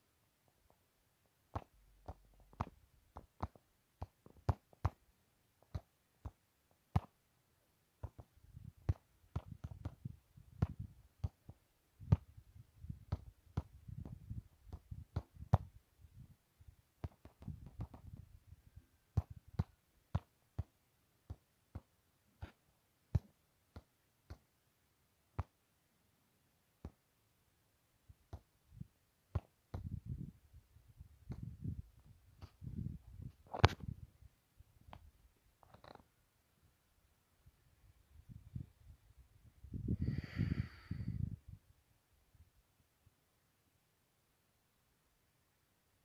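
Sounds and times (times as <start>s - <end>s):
wind rumble on microphone: 12.0s - 16.4s, 17.4s - 18.8s, 29.8s - 34.2s, 38.1s - 41.7s
microphone handling clicks: 32.4s - 34.0s.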